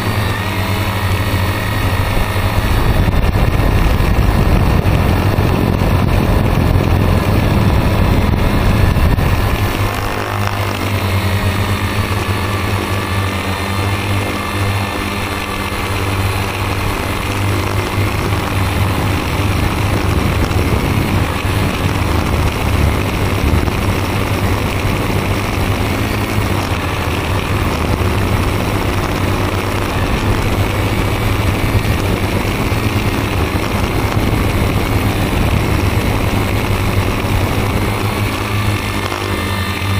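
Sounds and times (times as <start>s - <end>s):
drone propellers whining: 0.0s - 39.9s
wind rumble on microphone: 0.0s - 39.9s.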